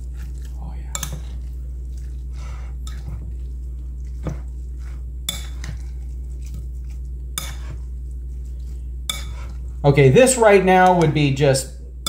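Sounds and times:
soft wet rustling of food: 0:00.0 - 0:11.0
steady low hum: 0:00.0 - 0:12.0.

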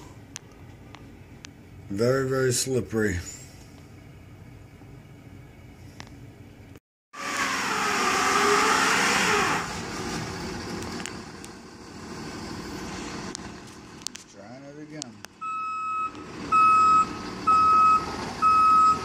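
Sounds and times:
truck engine revving: 0:07.2 - 0:14.1, 0:15.6 - 0:19.0.

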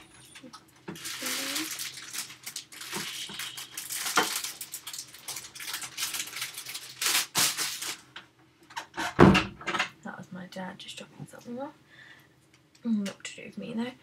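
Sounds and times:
objects rustling and clattering: 0:00.0 - 0:09.9.

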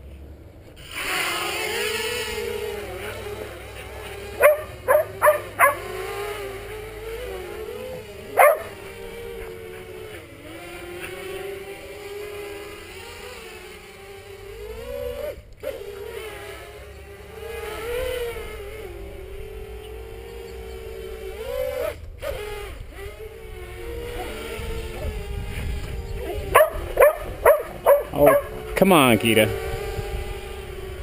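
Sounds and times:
drone motors whining: 0:00.0 - 0:31.0
dog barking: 0:04.4 - 0:05.9, 0:08.4 - 0:08.8, 0:26.5 - 0:28.6.

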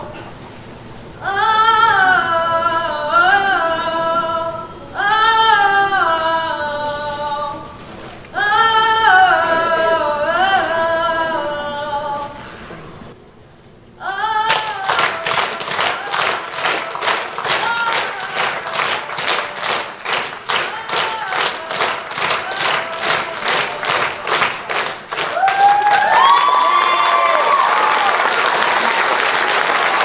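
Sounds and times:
children's choir singing: 0:01.2 - 0:07.8, 0:08.4 - 0:12.4, 0:14.0 - 0:25.0
audience applause: 0:14.6 - 0:30.0.

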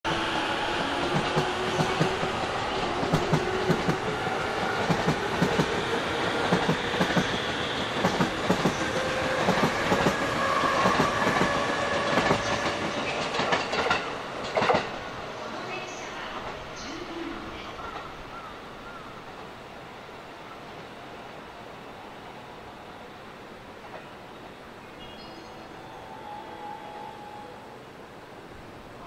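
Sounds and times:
train wheels clicking over rail joints: 0:06.4 - 0:15.0.

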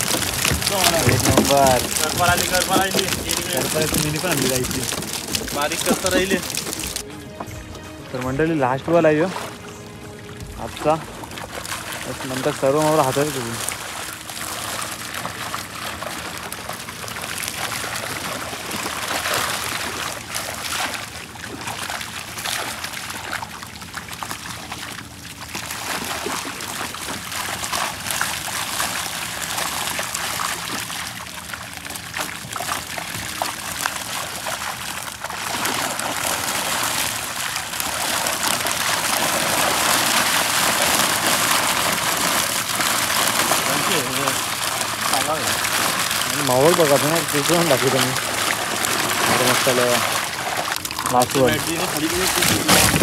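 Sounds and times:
water splashing and trickling: 0:00.0 - 0:53.0.

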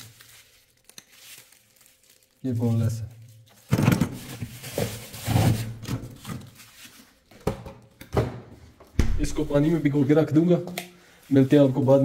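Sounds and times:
kitchen items rustling and knocking: 0:03.5 - 0:10.1.

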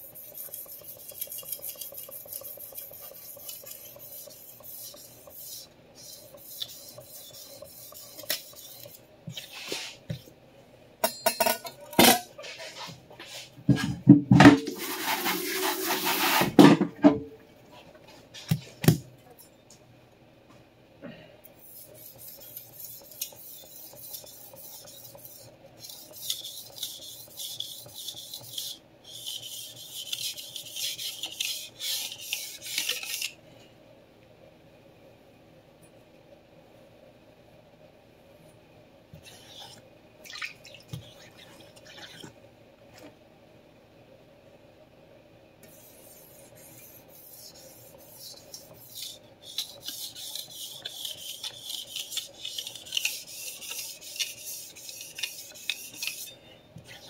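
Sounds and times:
knife scraping across a whetstone: 0:00.0 - 0:10.0, 0:21.6 - 0:33.4, 0:45.7 - 0:57.0.

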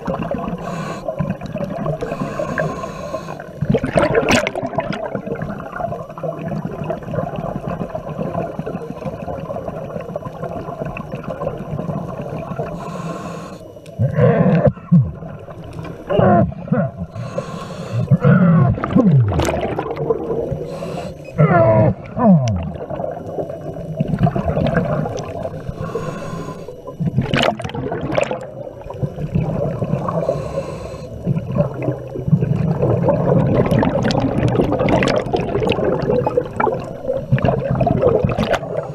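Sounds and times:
bubbles gurgling underwater: 0:00.0 - 0:02.7, 0:03.4 - 0:12.8, 0:13.9 - 0:17.3, 0:18.0 - 0:26.0, 0:26.8 - 0:30.4, 0:31.2 - 0:38.9
regulator inhale hiss: 0:00.4 - 0:03.6, 0:12.5 - 0:14.8, 0:17.0 - 0:18.3, 0:20.5 - 0:21.4, 0:25.4 - 0:27.0, 0:30.0 - 0:31.4, 0:38.6 - 0:38.9.

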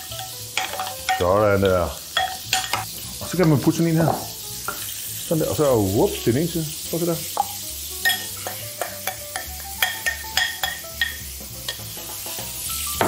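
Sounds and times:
meatballs sizzling in a pan: 0:00.0 - 0:13.0
metal spoon clinking on glass bowl: 0:08.0 - 0:11.8.

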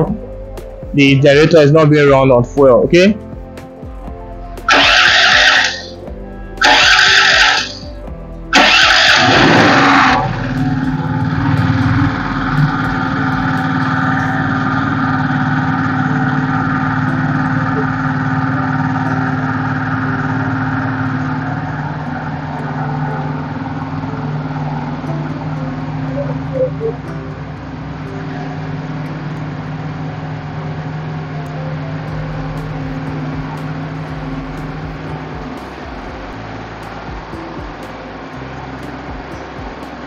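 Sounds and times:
generator engine running: 0:00.0 - 0:40.0
generator engine cranking: 0:04.6 - 0:36.7.

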